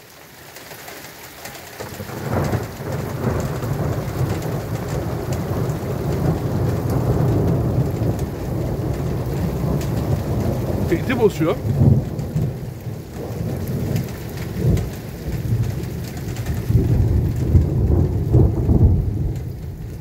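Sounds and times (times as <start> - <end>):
rain falling: 0.0 - 20.0
thunder rumbling: 1.9 - 20.0.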